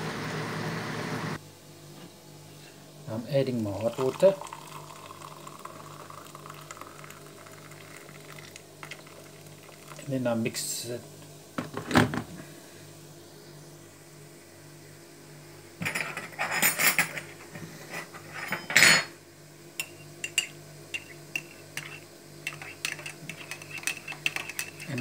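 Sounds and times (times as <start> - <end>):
spoon clinking in ceramic mug: 19.8 - 25.0.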